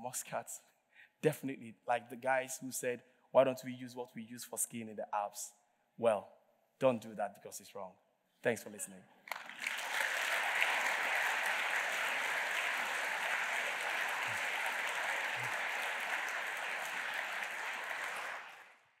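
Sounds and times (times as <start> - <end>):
audience applauding: 9.3 - 19.0.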